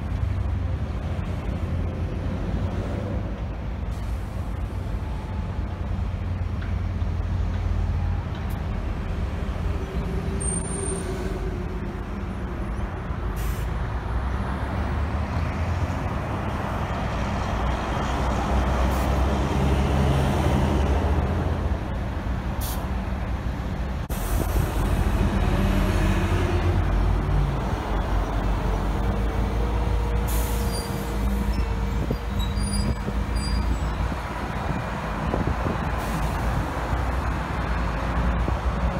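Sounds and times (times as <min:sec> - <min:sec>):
bus engines idling: 0:00.0 - 0:38.9
air brake hisses: 0:13.4 - 0:13.7.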